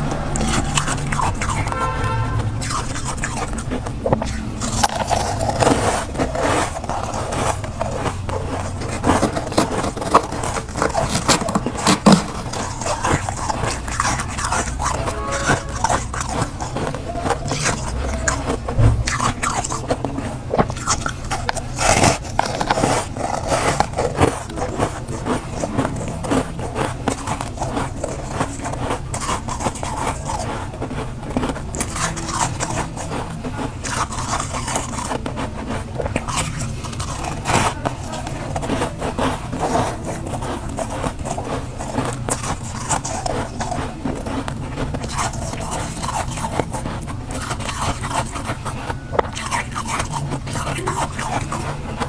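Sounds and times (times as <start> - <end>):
spoon scraping freezer frost: 0.0 - 52.0
spoon scraping frost: 0.0 - 52.0.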